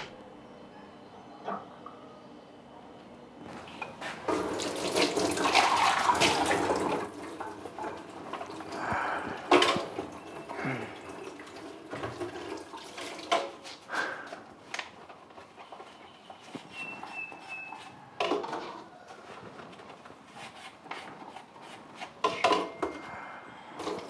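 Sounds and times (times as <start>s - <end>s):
water running and splashing: 4.3s - 13.9s.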